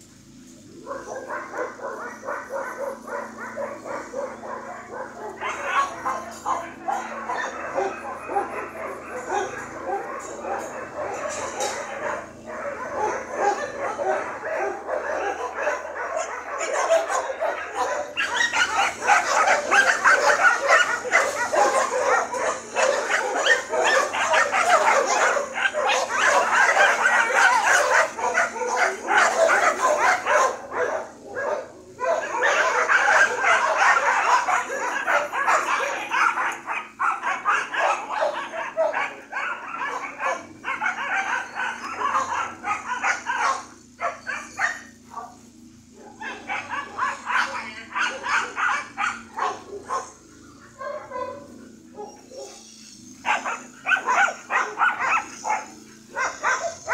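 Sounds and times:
dog yipping and barking: 0.8 - 56.9.

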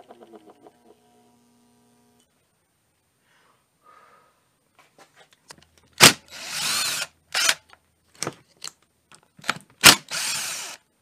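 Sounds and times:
cordless drill whirring: 6.3 - 7.6, 9.8 - 10.8.

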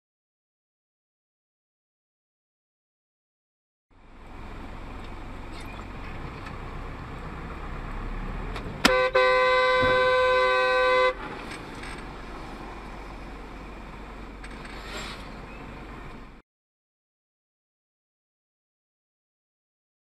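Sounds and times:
steady road noise: 3.9 - 16.4
vehicle horn blasts: 8.8 - 11.2.

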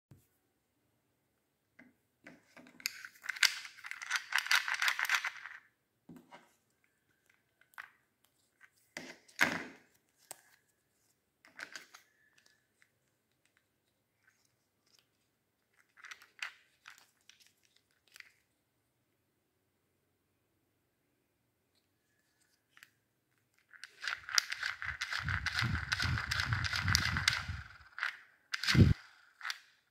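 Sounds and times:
plastic clicks and scrapes: 2.2 - 5.6, 11.4 - 13.6, 22.7 - 29.9
plastic parts rattling: 2.3 - 5.7, 11.5 - 12.8, 14.4 - 18.4, 22.8 - 29.9.

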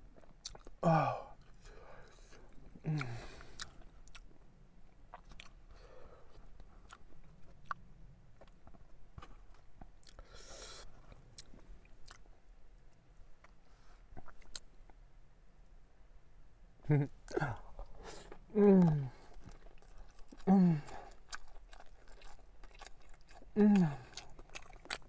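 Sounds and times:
person chewing sandwich: 0.0 - 15.0, 17.0 - 25.0.

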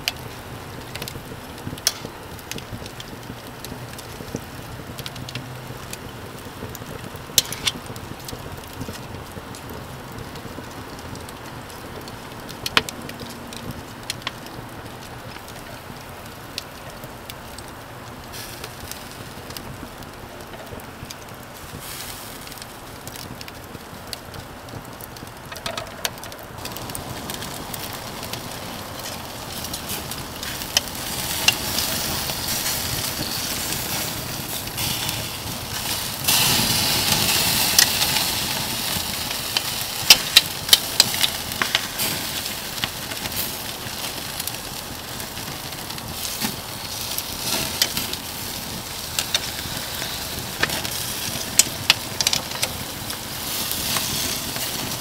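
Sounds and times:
wood fire crackling and popping: 0.0 - 55.0
steak sizzling on grill: 18.3 - 19.9, 21.6 - 23.0, 25.5 - 55.0.

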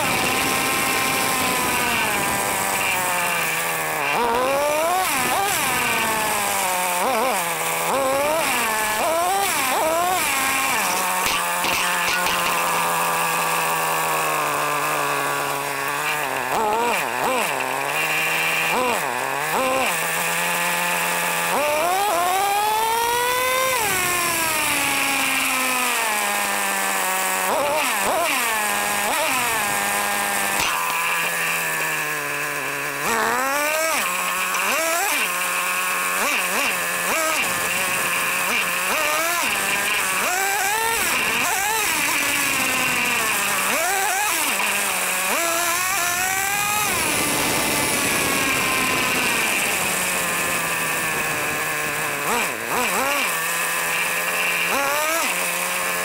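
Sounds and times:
small two-stroke engine revving: 0.0 - 56.0.

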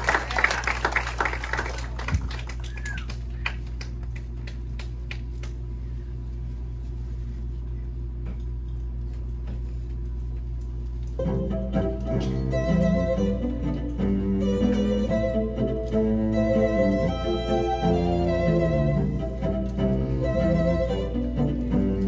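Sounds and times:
audience applause: 0.0 - 5.5
steady low hum: 0.0 - 22.0.

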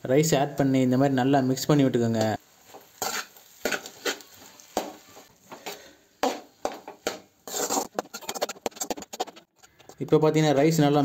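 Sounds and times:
ladle scraping rice in metal pan: 3.0 - 4.2, 7.5 - 9.9.

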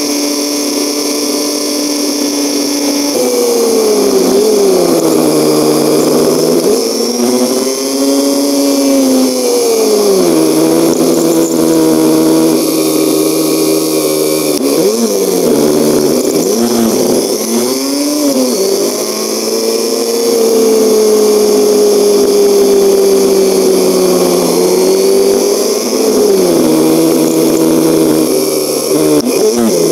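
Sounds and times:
motorcycle engine running: 0.0 - 29.9.

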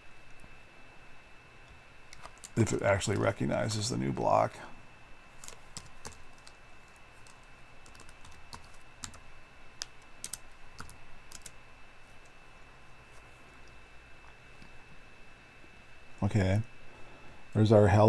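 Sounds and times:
keyboard keys clicking: 7.2 - 9.2, 9.8 - 11.5.

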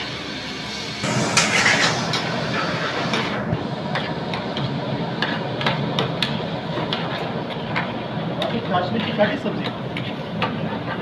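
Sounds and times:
pan hissing over gas flame: 0.0 - 5.6
metal utensils scraping a pan: 1.1 - 3.3.

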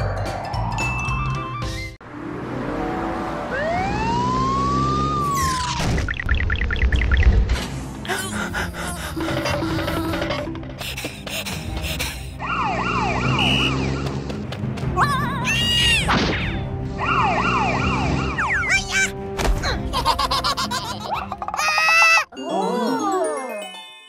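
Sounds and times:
ambulance siren sweeping down: 3.3 - 5.8, 12.4 - 14.0, 16.9 - 18.7
background music: 7.5 - 24.0.

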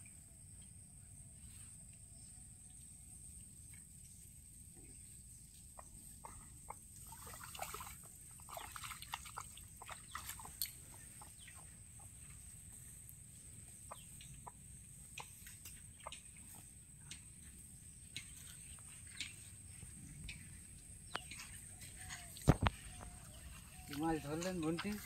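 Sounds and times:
chickens clucking: 5.7 - 7.0, 9.4 - 18.4.

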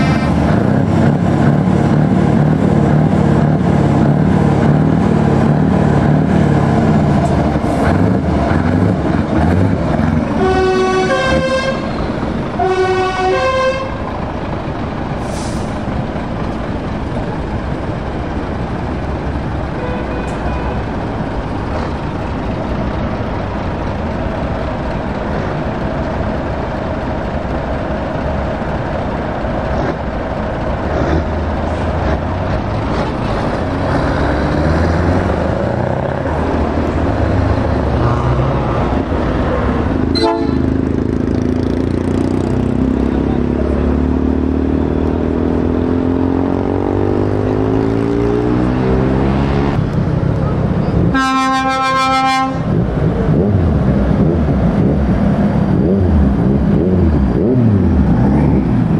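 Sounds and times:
truck diesel engines: 0.0 - 58.9.

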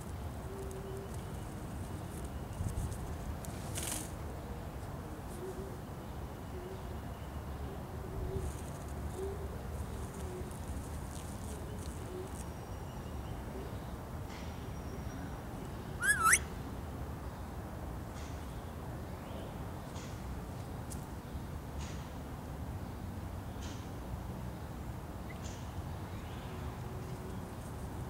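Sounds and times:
low outdoor background: 0.0 - 28.0
parakeet whistle: 16.0 - 16.5.

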